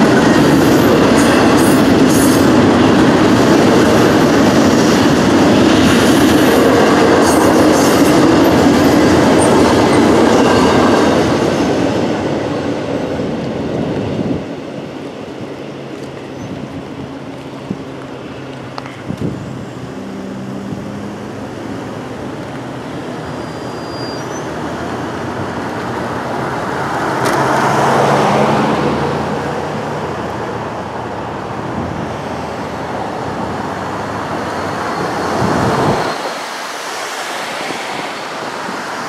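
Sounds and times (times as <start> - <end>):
cars driving over railroad crossing: 0.0 - 39.0
engine hum: 15.0 - 34.7.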